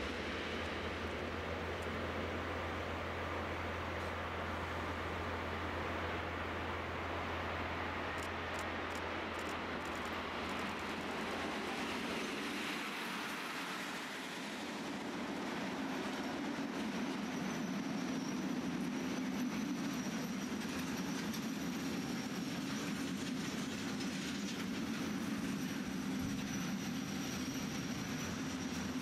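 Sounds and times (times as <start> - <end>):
freight train rumbling past: 0.0 - 29.0
high brake squeal: 17.0 - 21.8, 26.0 - 29.0.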